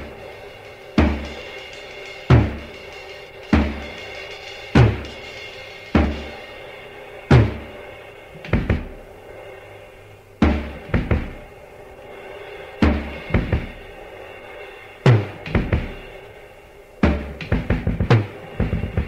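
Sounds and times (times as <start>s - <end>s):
heavy rock drum hits: 0.0s - 6.6s, 7.3s - 7.8s, 8.4s - 9.1s, 10.4s - 11.5s, 12.8s - 14.0s, 15.1s - 16.1s, 17.0s - 19.0s.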